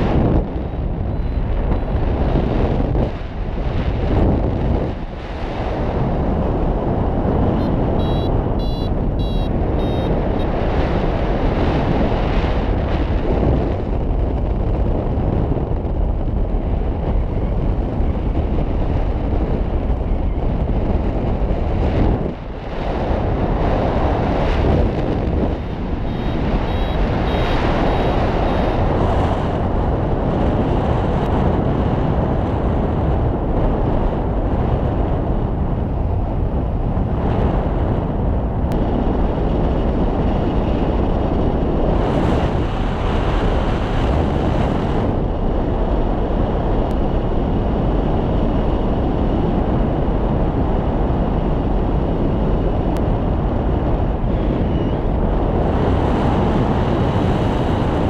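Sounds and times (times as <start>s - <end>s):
wind rushing over microphone: 0.0s - 58.0s
variometer beeping high tones: 7.6s - 10.5s, 25.6s - 28.8s.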